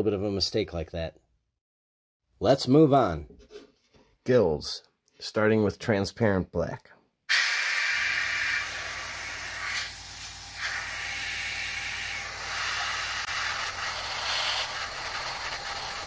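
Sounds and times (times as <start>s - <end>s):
airbrush air hiss: 7.3s - 16.0s.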